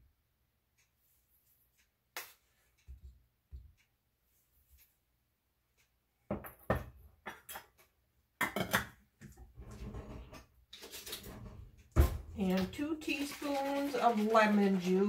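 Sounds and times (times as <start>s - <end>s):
metal saucepan knocks and clatters: 6.3s - 7.8s, 8.4s - 9.0s.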